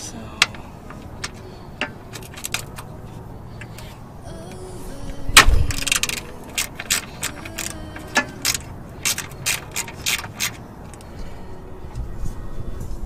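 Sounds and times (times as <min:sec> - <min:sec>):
ratchet wrench clicking: 0:00.4 - 0:02.8, 0:05.6 - 0:11.0.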